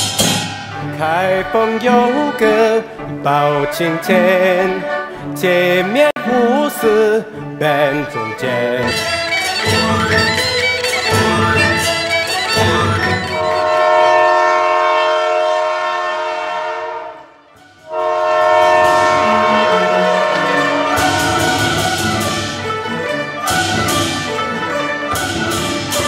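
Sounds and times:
orchestral music with drums: 0:00.0 - 0:03.2, 0:08.8 - 0:14.6, 0:17.6 - 0:26.0
steam locomotive whistle: 0:08.9 - 0:22.8.

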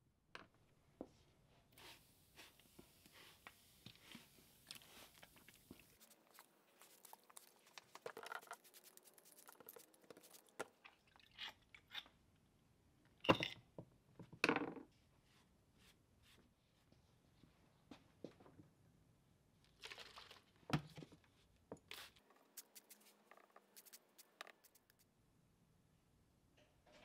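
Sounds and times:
spray bottle spritzing: 0:05.8 - 0:10.6, 0:21.9 - 0:25.0.

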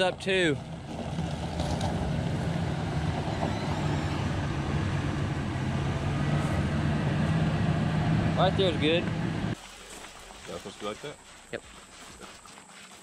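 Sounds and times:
engine running steadily: 0:00.0 - 0:09.6
tires rolling over gravel: 0:00.0 - 0:12.5.

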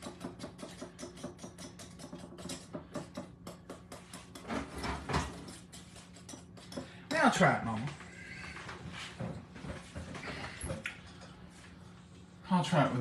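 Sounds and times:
metal spoon stirring in bowl: 0:00.0 - 0:04.7, 0:05.3 - 0:07.0.

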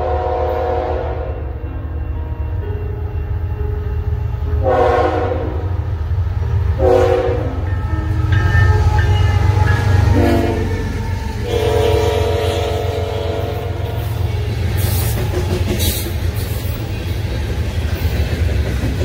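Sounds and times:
train air horn blasts: 0:00.0 - 0:01.5, 0:04.6 - 0:05.8, 0:06.8 - 0:07.7, 0:10.0 - 0:15.2
diesel locomotive rumble: 0:00.0 - 0:19.0
train cars rolling by: 0:00.0 - 0:19.0.

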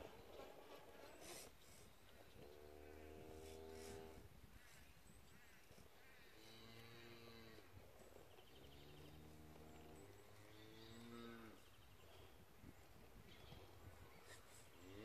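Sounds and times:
distant cattle mooing: 0:08.7 - 0:11.7.

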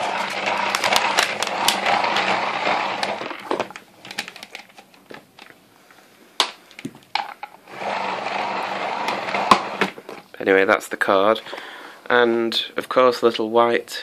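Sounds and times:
vacuum cable rewind whirring: 0:00.0 - 0:03.8, 0:07.7 - 0:10.0.

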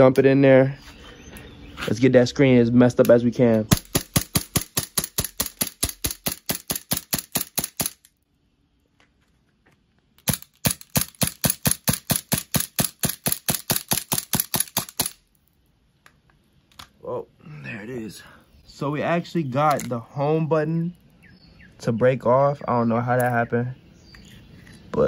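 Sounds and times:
bb pistol shots: 0:03.7 - 0:08.1, 0:10.2 - 0:15.2.

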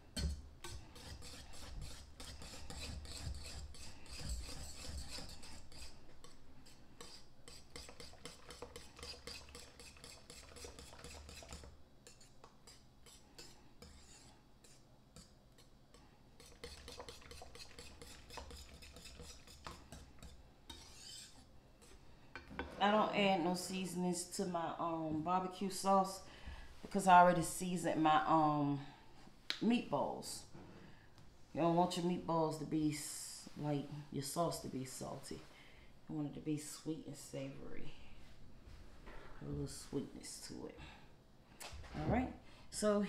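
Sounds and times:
whisk scraping glass bowl: 0:00.2 - 0:15.7, 0:16.4 - 0:21.9.

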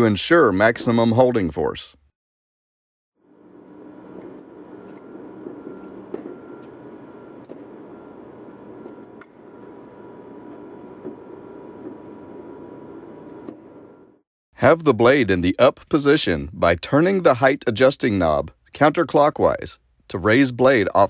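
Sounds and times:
faint workshop hum: 0:03.2 - 0:14.2.

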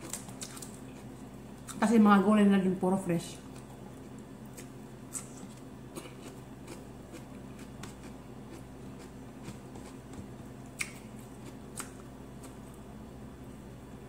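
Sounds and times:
steady low hum: 0:00.0 - 0:14.0
chewing with wet mouth clicks: 0:03.5 - 0:12.8.

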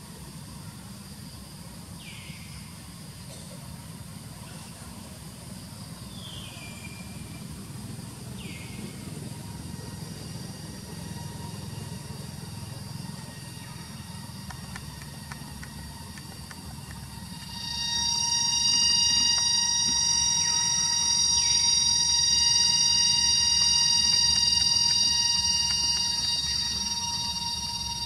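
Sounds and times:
faint insect hum: 0:00.0 - 0:28.0
short whistled calls: 0:10.8 - 0:28.0.

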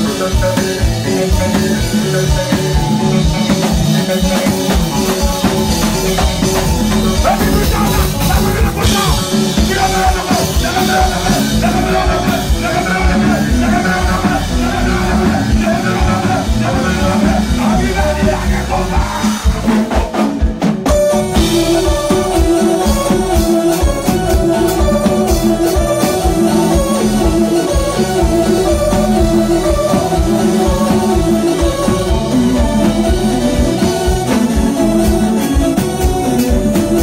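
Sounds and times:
person singing: 0:00.0 - 0:20.2
drum kit: 0:00.0 - 0:37.0
electric guitar: 0:00.0 - 0:37.0.

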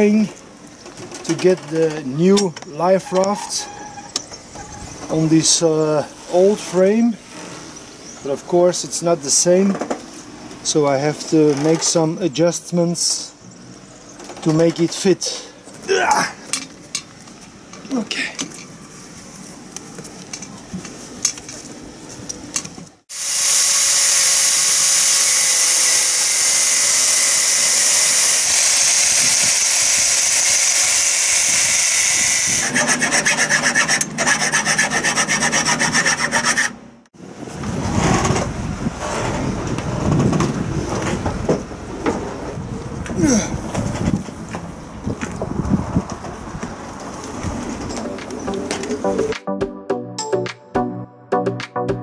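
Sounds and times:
sawing: 0:23.1 - 0:36.8
quick filing strokes: 0:32.5 - 0:36.8.

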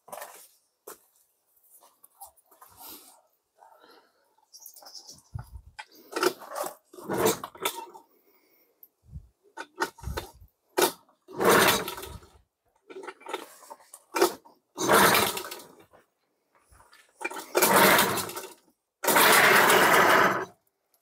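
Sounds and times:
recoil starter cord pulls: 0:05.8 - 0:08.0, 0:09.6 - 0:15.9, 0:17.2 - 0:20.6
outboard engine pull-start whirr: 0:06.0 - 0:08.0, 0:09.6 - 0:15.8, 0:17.2 - 0:20.5.

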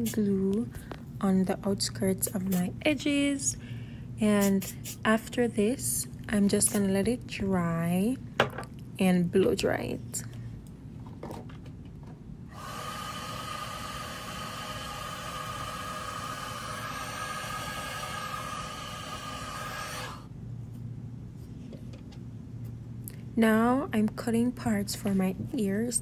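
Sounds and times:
hair dryer running: 0:12.5 - 0:20.3.

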